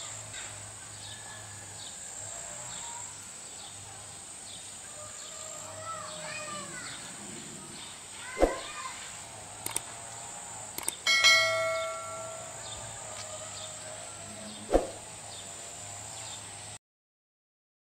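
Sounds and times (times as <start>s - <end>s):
metallic bell-like ring: 11.1s - 12.8s.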